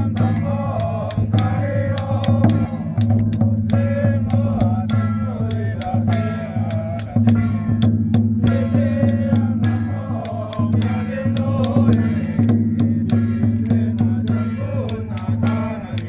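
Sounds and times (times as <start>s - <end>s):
large drum strikes: 0.0s - 15.7s
percussion: 0.0s - 16.0s
person chanting: 0.0s - 16.0s.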